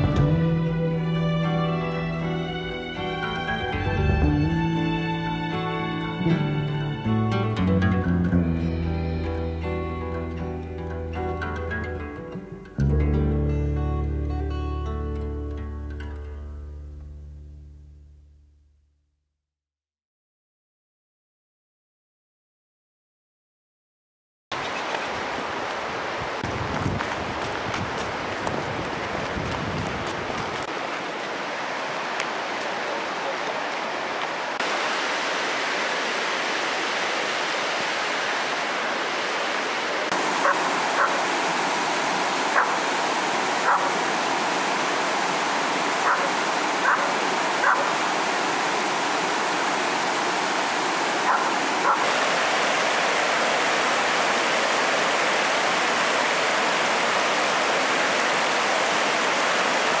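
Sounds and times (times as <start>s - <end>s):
river rapids rushing over rocks: 30.3s - 60.0s.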